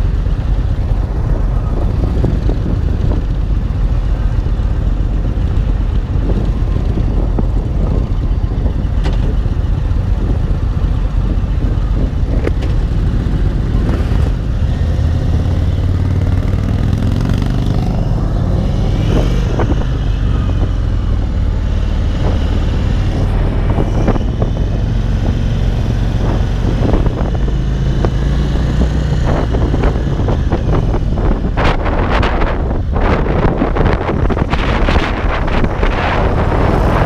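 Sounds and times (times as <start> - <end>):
motorcycle engine: 0.0 - 37.0
wind buffeting microphone: 0.0 - 37.0.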